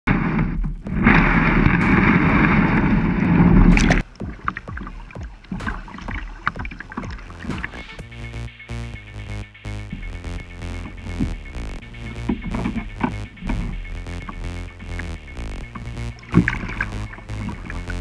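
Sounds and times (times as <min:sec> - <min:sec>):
water lapping and splashing: 0:00.1 - 0:08.1, 0:10.9 - 0:18.0
music: 0:03.7 - 0:18.0.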